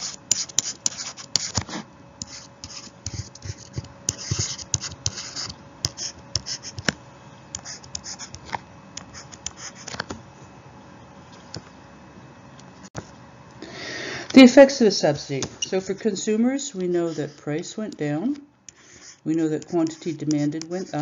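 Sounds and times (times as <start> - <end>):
pen scratching on paper: 0.0 - 6.9, 7.6 - 8.4, 16.8 - 17.6, 18.8 - 21.0.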